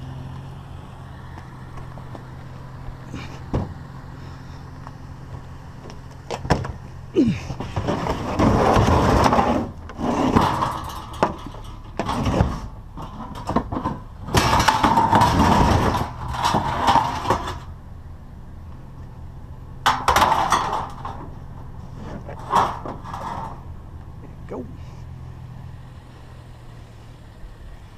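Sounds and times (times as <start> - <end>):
metal knocks and clanks: 5.8 - 17.8, 19.8 - 23.8
metal scraping in truck bed: 6.4 - 17.8, 19.8 - 24.0.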